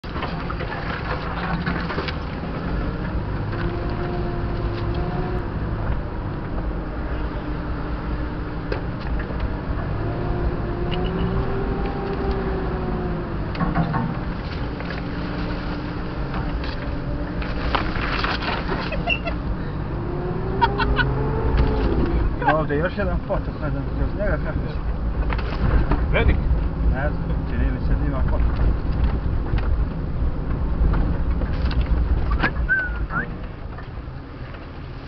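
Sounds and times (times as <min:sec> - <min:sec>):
off-road vehicle engine running: 0:00.0 - 0:35.0
knocks over bumps: 0:13.5 - 0:15.4, 0:24.9 - 0:26.9.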